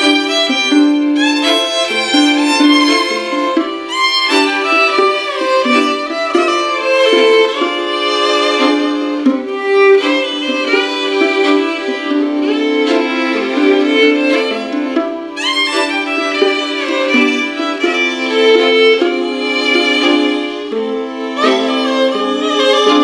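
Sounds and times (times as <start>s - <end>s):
solo violin melody: 0.0s - 23.0s.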